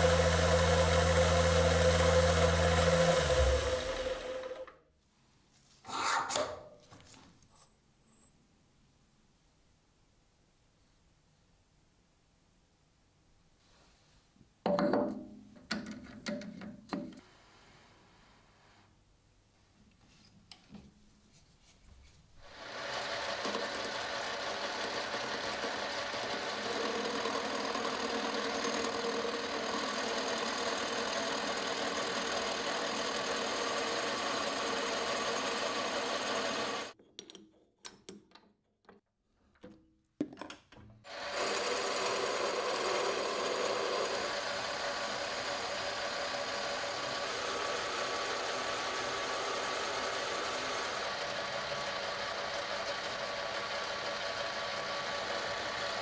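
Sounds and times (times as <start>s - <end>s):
metal lathe cutting: 0.0s - 4.7s, 22.5s - 36.9s, 41.1s - 56.0s.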